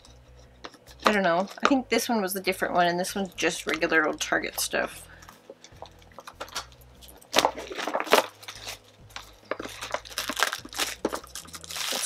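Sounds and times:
cardboard and paper tearing: 7.4 - 8.8, 9.6 - 12.0.

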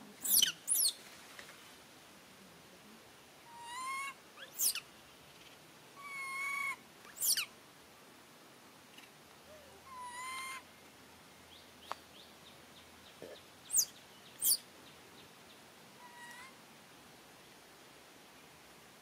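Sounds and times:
baby monkey coo calls: 0.2 - 1.0, 3.5 - 4.8, 6.0 - 7.5, 9.6 - 10.6, 13.2 - 14.6, 16.0 - 16.6.

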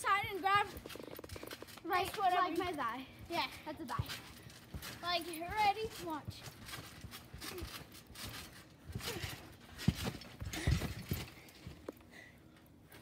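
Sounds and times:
trampoline springs clanking: 0.0 - 12.2
thumps on trampoline mat: 5.9 - 11.4.

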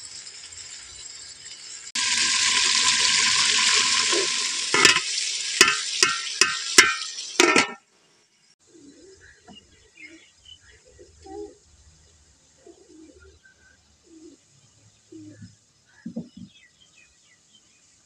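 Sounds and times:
liquid sizzling in hot pot: 0.0 - 7.9
metal ladle clanking on pot: 4.7 - 7.8.

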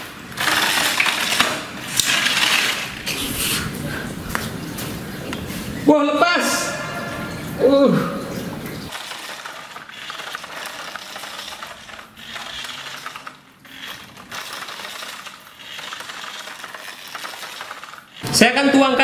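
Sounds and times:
toy truck motor whirring: 0.0 - 3.2, 8.9 - 18.2.

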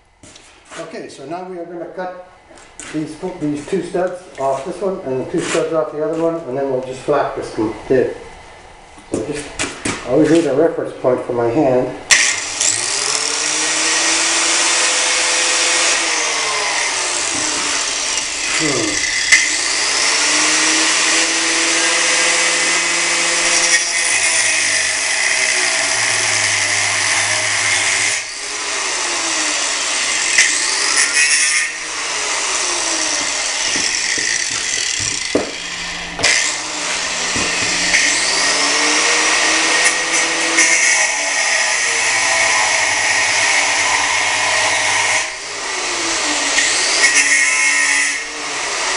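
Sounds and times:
angle grinder cutting steel: 12.1 - 48.9.

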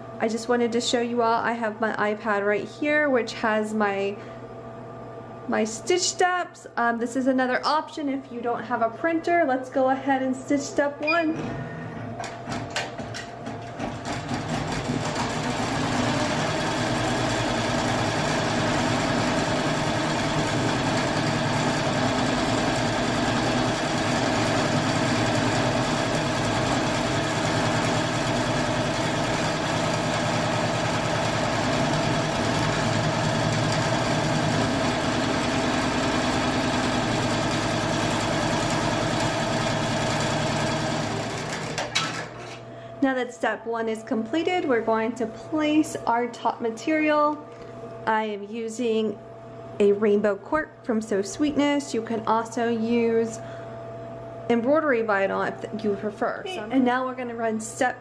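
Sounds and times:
embroidery machine sewing: 11.4 - 42.6.

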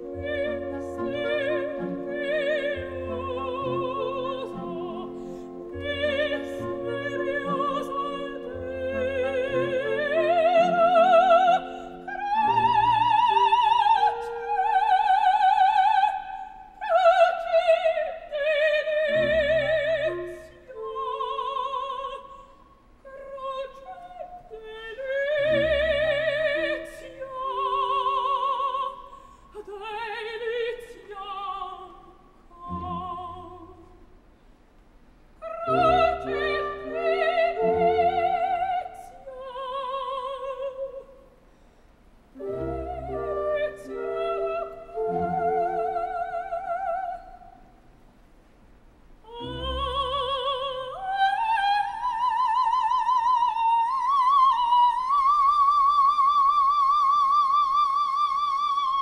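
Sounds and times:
light orchestral accompaniment: 0.0 - 16.2, 32.6 - 34.0, 35.4 - 40.5, 42.4 - 47.3
operatic soprano singing: 0.0 - 34.1, 35.4 - 41.4, 42.4 - 47.8, 49.2 - 59.0.

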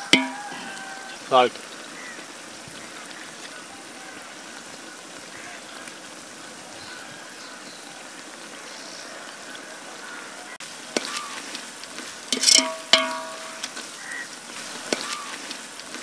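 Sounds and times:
spoon knocking against pot: 0.0 - 0.5, 12.4 - 13.7
vegetables sizzling in oil: 0.0 - 16.0.

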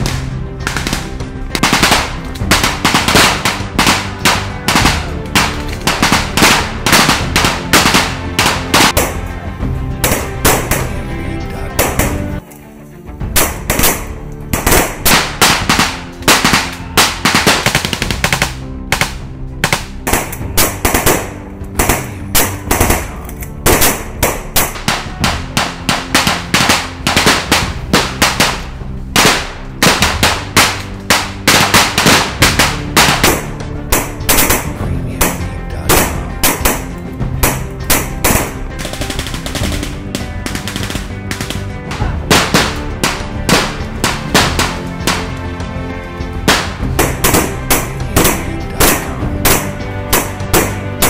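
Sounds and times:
background music: 0.0 - 51.0
automatic gunfire: 0.6 - 9.2, 13.4 - 28.6, 29.2 - 41.7, 46.5 - 50.8.

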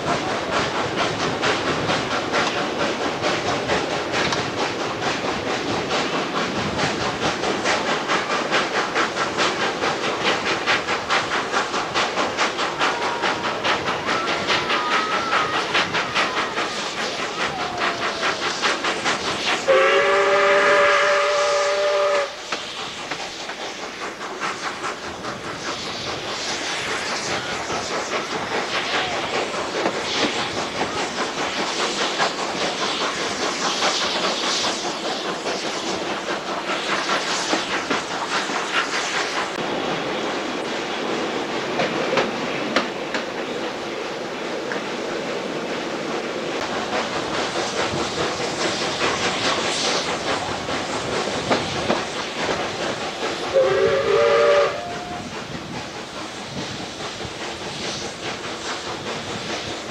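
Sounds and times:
steam locomotive chuffing: 0.0 - 59.9
steam whistle blast: 19.7 - 22.5, 53.5 - 55.3.

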